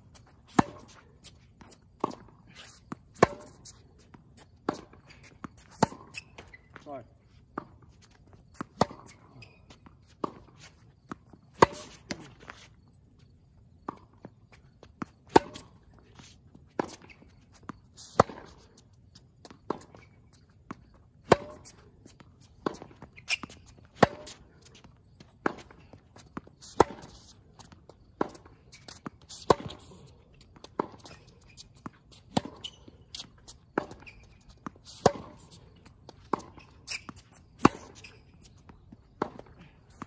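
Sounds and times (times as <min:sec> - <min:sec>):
rackets striking tennis ball: 0:00.4 - 0:02.3, 0:02.9 - 0:06.8, 0:08.4 - 0:12.9, 0:15.1 - 0:16.0, 0:21.2 - 0:21.8, 0:22.5 - 0:40.0.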